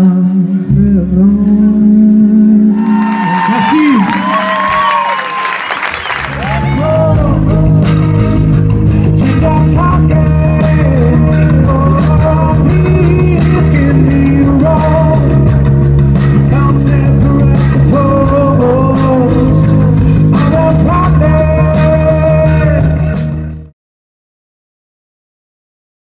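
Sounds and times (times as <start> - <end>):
male singer singing: 0.0 - 4.3, 6.4 - 8.4, 9.2 - 15.6, 16.3 - 23.7
rock band playing: 3.7 - 23.7.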